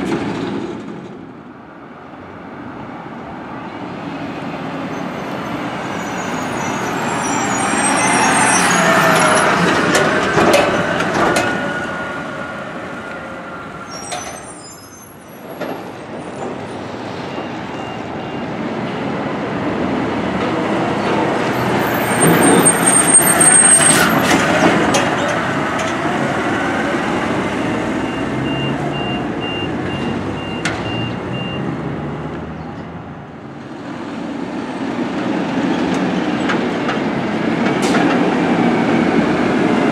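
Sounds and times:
garbage truck diesel engine: 0:04.2 - 0:39.9
high-pitched squeaks: 0:05.8 - 0:09.9, 0:13.8 - 0:15.5.

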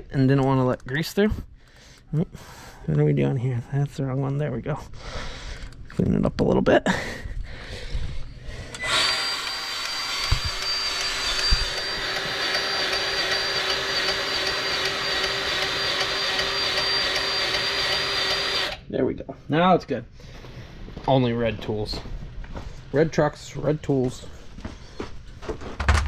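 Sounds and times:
grease gun motor whining: 0:08.7 - 0:18.8.

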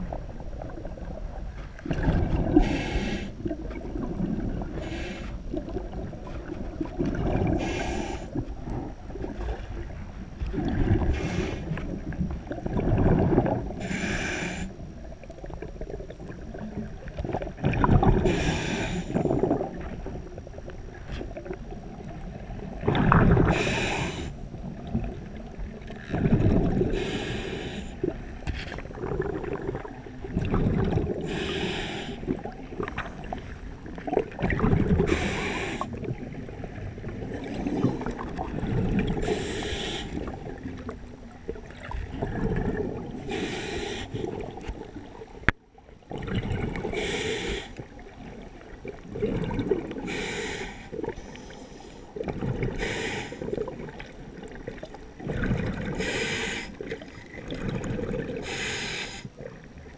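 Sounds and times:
exhaled air bubbling: 0:00.0 - 0:59.9
regulator inhale hiss: 0:02.6 - 0:03.4, 0:04.8 - 0:05.4, 0:07.6 - 0:08.4, 0:11.1 - 0:11.8, 0:13.8 - 0:14.8, 0:18.2 - 0:19.3, 0:23.5 - 0:24.4, 0:26.9 - 0:28.1, 0:31.2 - 0:32.3, 0:35.1 - 0:36.0, 0:39.2 - 0:40.4, 0:43.2 - 0:44.4, 0:46.9 - 0:47.9, 0:50.0 - 0:52.1, 0:52.7 - 0:53.5, 0:55.9 - 0:56.9, 0:58.4 - 0:59.3.

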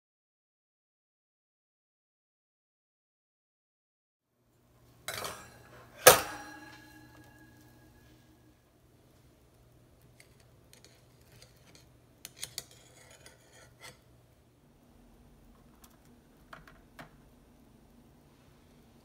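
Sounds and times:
metal spatula clicking on wire rack: 0:05.1 - 0:07.4.

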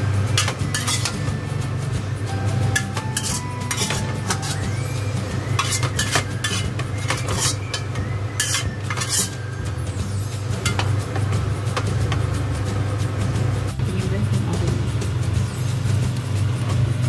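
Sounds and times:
steady low hum: 0:00.0 - 0:17.0
metal ladle scraping wok: 0:00.3 - 0:01.3, 0:02.6 - 0:11.8.

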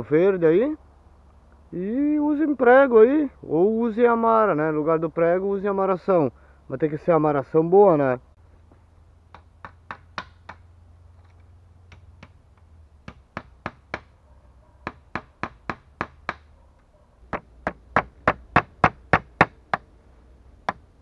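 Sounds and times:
hammer driving nails into bamboo: 0:13.0 - 0:14.1, 0:14.9 - 0:16.5.

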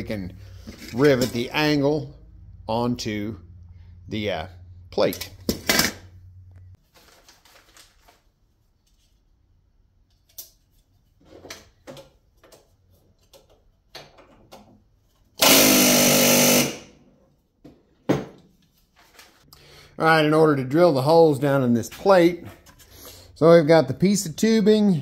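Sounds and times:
pneumatic rivet gun burst: 0:15.4 - 0:16.9.

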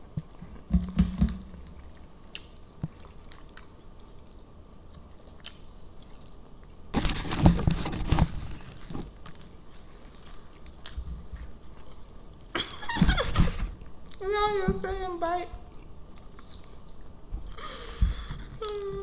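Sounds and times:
chewing and biting food: 0:01.6 - 0:07.2.

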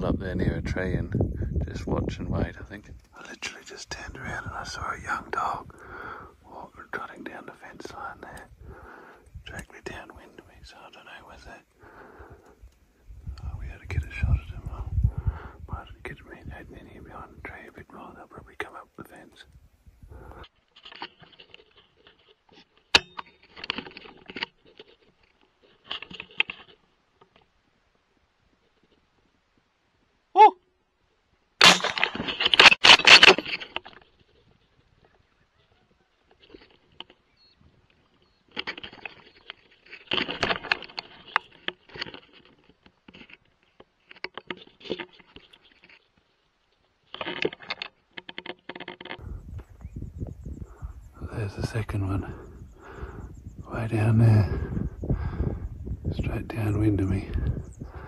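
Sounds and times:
rustling and scraping of gear: 0:19.1 - 0:29.7, 0:31.9 - 0:58.0.

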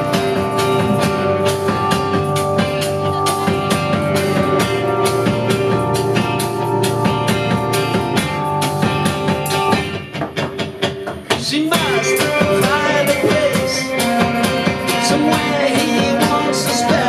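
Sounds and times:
upright double bass: 0:00.0 - 0:06.6, 0:12.3 - 0:17.0
drum kit beat: 0:00.0 - 0:17.0
banjo: 0:11.8 - 0:17.0.

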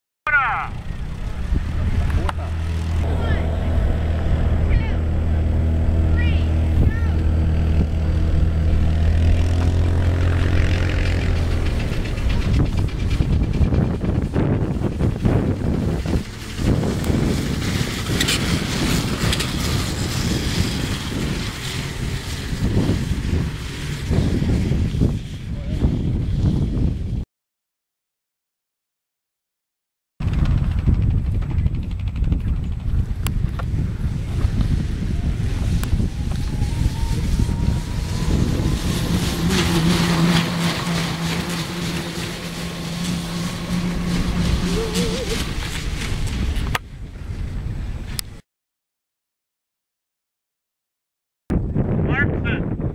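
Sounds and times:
steady low hum: 0:00.7 - 0:17.4
wind buffeting microphone: 0:00.7 - 0:27.2, 0:30.2 - 0:48.4, 0:51.5 - 0:52.9
electric snowmobiles pulling away: 0:00.8 - 0:25.5, 0:33.2 - 0:46.6
high squeals: 0:36.0 - 0:45.8.

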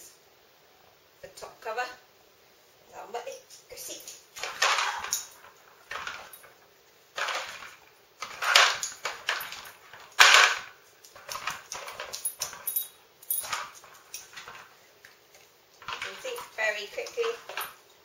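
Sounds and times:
plastic scraping: 0:07.2 - 0:12.1.

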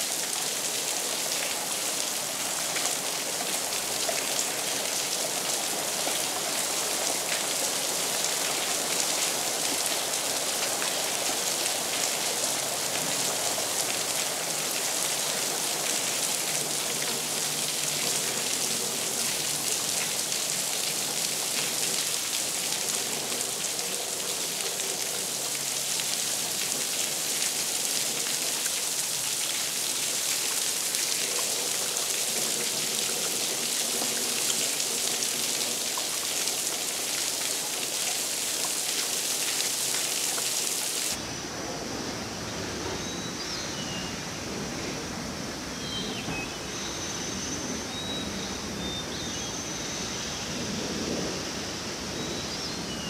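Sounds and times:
rain on wet paving: 0:00.0 - 0:41.3.

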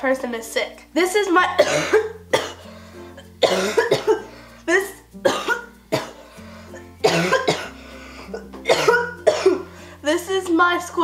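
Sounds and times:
background music with slow bass: 0:00.8 - 0:11.0
girl coughing: 0:01.6 - 0:02.7, 0:03.4 - 0:06.2, 0:07.0 - 0:09.7.

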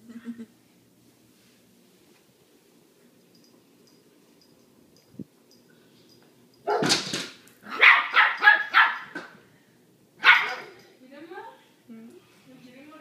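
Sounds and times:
small dog barking: 0:06.7 - 0:06.9, 0:07.7 - 0:09.2, 0:10.2 - 0:10.8.

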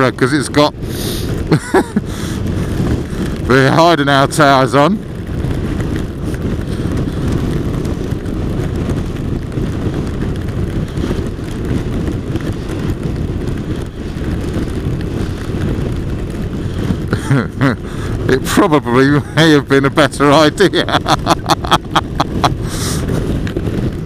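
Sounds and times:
motorcycle engine drone: 0:00.0 - 0:24.0
wind rush with buffeting: 0:00.0 - 0:24.0.

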